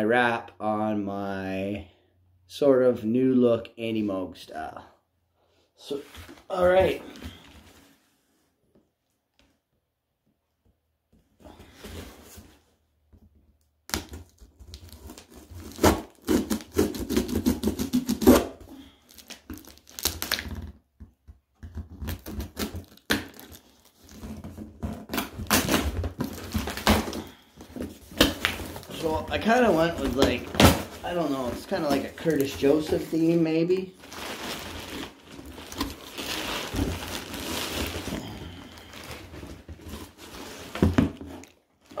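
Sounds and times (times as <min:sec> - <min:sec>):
packing tape tearing: 0:13.9 - 0:20.7, 0:21.9 - 0:33.2, 0:34.0 - 0:40.8.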